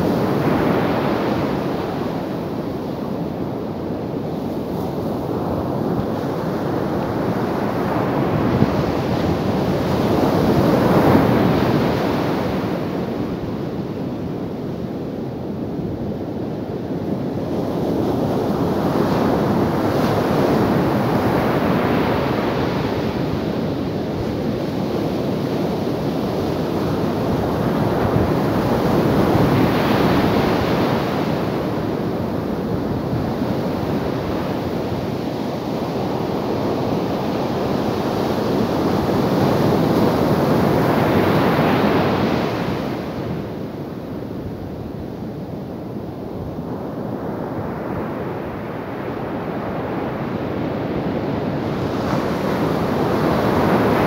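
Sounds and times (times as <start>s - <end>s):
ocean waves breaking on sand: 0.0s - 54.0s.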